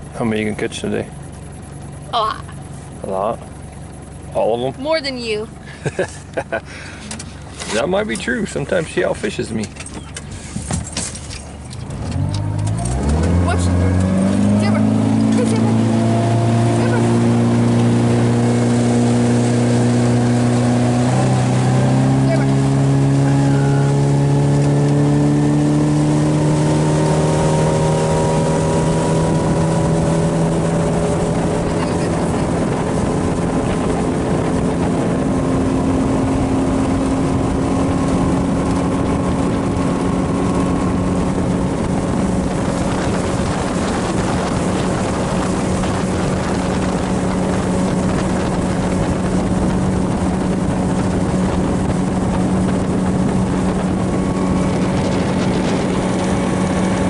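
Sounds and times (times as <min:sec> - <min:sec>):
boat motor running: 0:00.0 - 0:57.0
wind and water rushing: 0:11.9 - 0:57.0.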